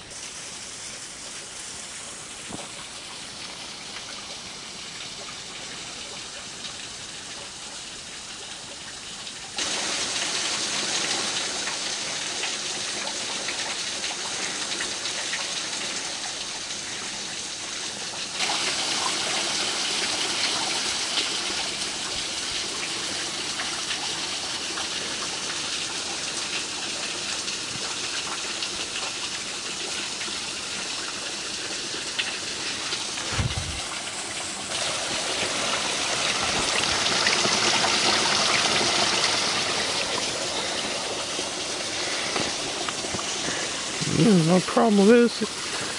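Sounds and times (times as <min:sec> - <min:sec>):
water rushing under ice: 0:00.0 - 0:45.9
brief low thump: 0:33.2 - 0:33.9.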